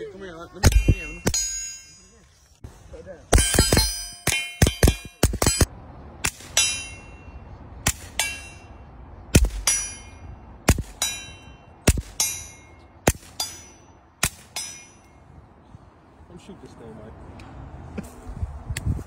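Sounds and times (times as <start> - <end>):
steel target clanging: 0.6 - 2.2, 3.3 - 15.2.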